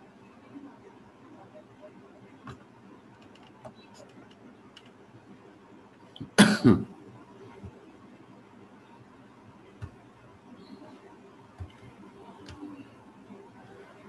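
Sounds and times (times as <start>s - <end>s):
faint clicks: 2.4s - 5.0s, 11.6s - 12.7s
person clearing throat: 6.2s - 6.9s.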